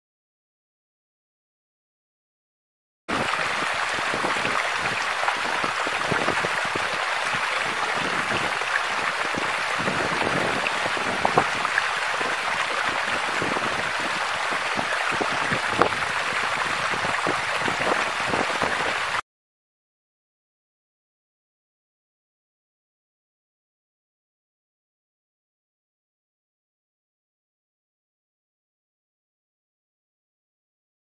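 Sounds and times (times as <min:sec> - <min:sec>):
running water hiss: 0:03.1 - 0:19.2.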